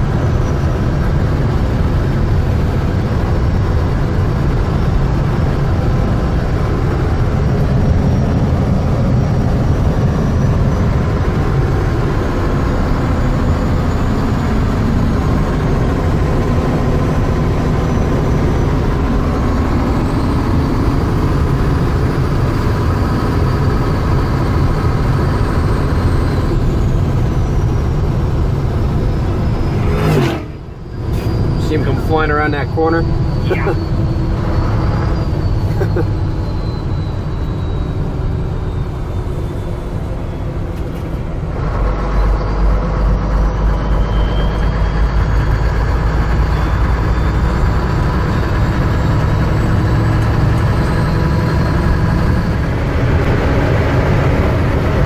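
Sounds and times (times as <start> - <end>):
truck engine and road rumble: 0.0 - 55.0
faint high whine: 25.0 - 41.5.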